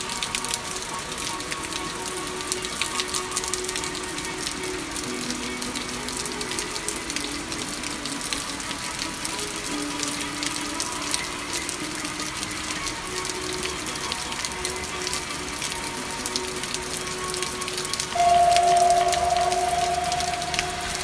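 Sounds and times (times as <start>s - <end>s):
rushing crackling water noise: 0.0s - 21.0s
faint held music notes: 15.4s - 21.0s.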